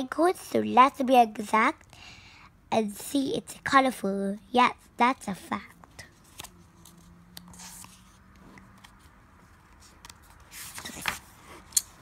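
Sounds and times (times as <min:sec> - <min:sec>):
paper page rustling: 0:06.0 - 0:11.8.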